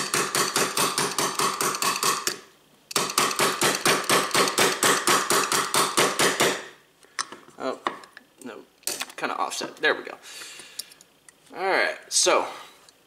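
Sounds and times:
small hammer tapping metal punch: 0:00.0 - 0:06.6.

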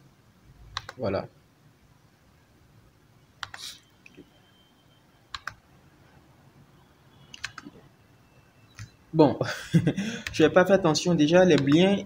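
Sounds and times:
computer mouse and keyboard clicking: 0:00.7 - 0:01.0, 0:03.4 - 0:04.2, 0:05.3 - 0:05.6, 0:07.3 - 0:07.8, 0:10.2 - 0:10.4, 0:11.5 - 0:11.9.

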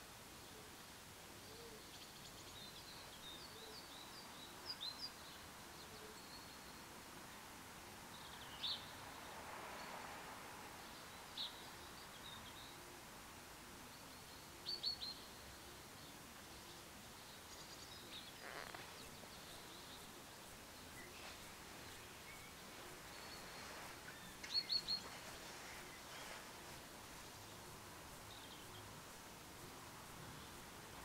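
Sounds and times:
faint outdoor background noise: 0:00.0 - 0:31.0
small birds chirping: 0:13.9 - 0:29.3.

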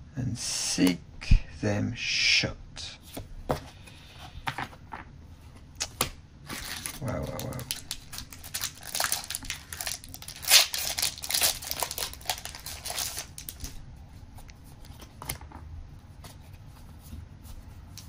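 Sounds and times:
wrapper crinkling: 0:06.5 - 0:13.8
wrapper ripping: 0:06.5 - 0:13.8.

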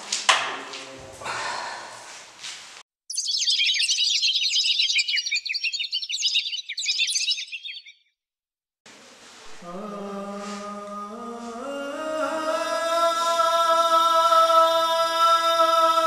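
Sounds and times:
small birds chirping chorus: 0:03.1 - 0:07.9.

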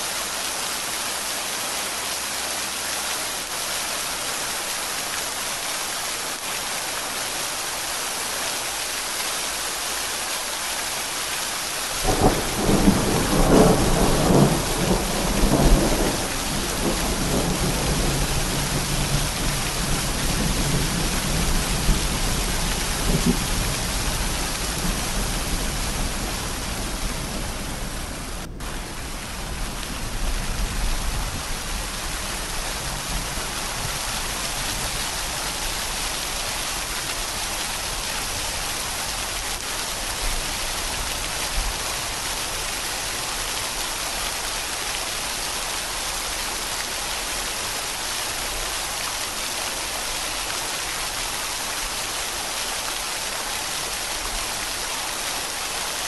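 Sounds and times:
steady rain falling: 0:00.0 - 0:56.0
distant thunder rumble: 0:12.0 - 0:31.6.

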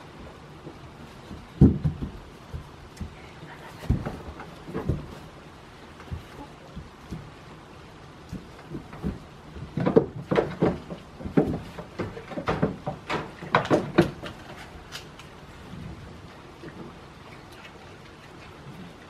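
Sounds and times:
knocks and thumps: 0:00.2 - 0:05.4, 0:06.0 - 0:07.5, 0:08.2 - 0:14.7.

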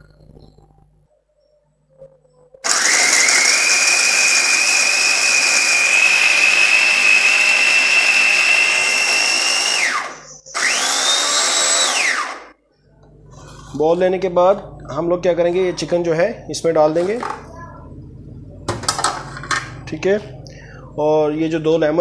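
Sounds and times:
food processor motor whining: 0:02.6 - 0:12.5.

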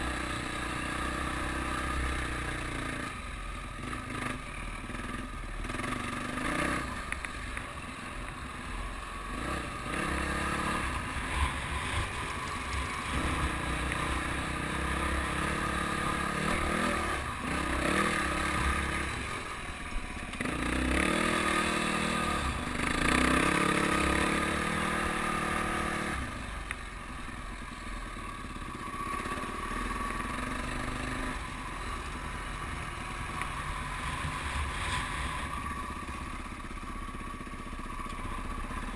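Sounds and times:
dirt bike engine revving: 0:03.8 - 0:07.1, 0:08.6 - 0:26.5.

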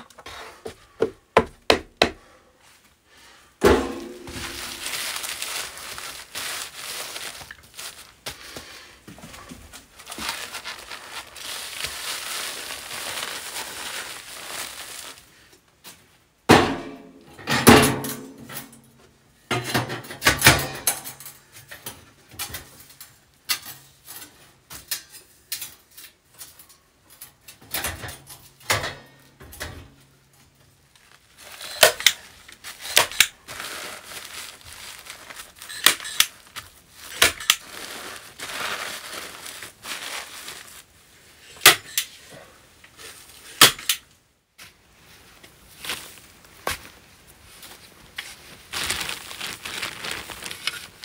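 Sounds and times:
foil sheet rustling: 0:03.7 - 0:15.5, 0:30.7 - 0:41.4, 0:44.7 - 0:51.0.

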